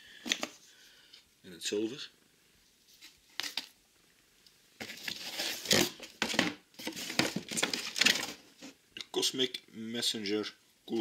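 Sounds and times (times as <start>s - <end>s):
cardboard and paper rustling: 4.8s - 8.8s.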